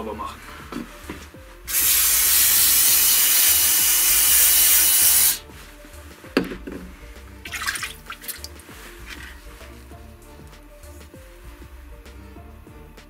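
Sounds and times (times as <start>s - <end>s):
aerosol can spraying hiss: 1.7s - 5.5s
knock: 6.4s - 6.9s
rustling: 8.2s - 10.1s.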